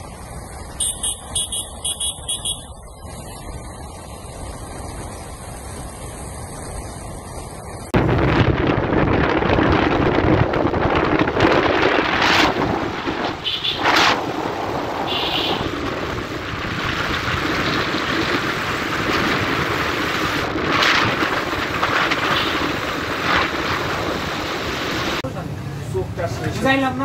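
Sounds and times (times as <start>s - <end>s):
motorcycle engine running: 0.0s - 7.9s
wind buffeting microphone: 7.9s - 25.2s.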